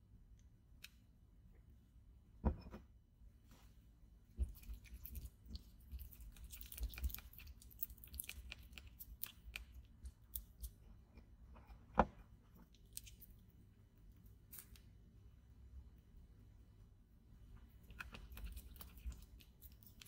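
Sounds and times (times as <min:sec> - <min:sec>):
spatula stirring sticky slime: 0:04.3 - 0:13.3.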